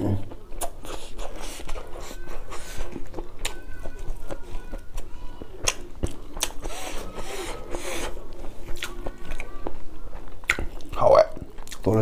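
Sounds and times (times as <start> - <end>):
wet chewing clicks and smacks: 10.1 - 11.9.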